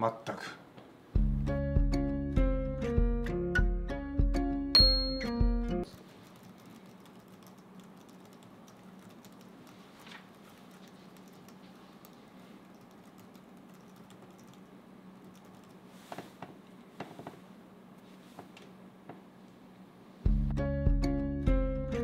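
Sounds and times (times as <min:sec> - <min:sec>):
laptop keyboard typing: 0:05.8 - 0:15.9.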